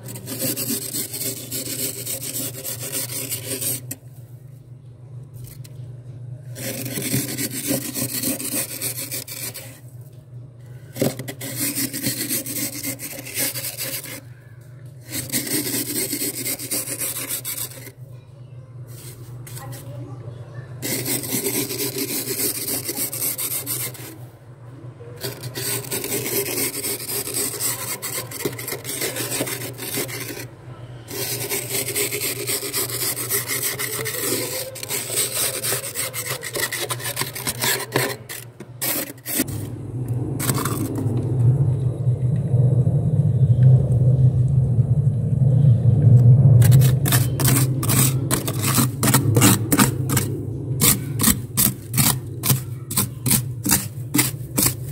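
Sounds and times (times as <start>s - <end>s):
steel glass scraping freezer frost: 0.0s - 4.0s, 6.5s - 9.9s, 10.9s - 14.4s, 15.0s - 18.0s, 20.8s - 24.2s, 25.2s - 30.5s, 31.1s - 39.7s, 46.6s - 54.9s.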